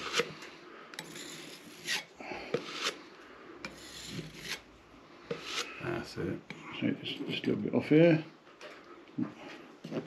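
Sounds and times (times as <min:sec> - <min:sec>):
metal knife scraping plaster: 0:00.0 - 0:05.9.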